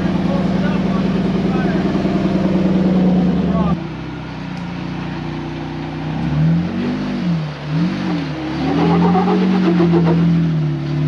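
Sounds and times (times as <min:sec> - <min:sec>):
car engine revving under load: 0:00.0 - 0:11.0.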